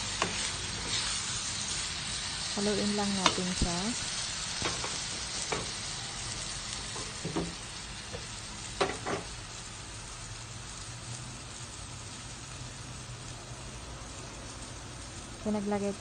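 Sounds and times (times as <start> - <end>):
food sizzling in a pot: 0.0 - 16.0.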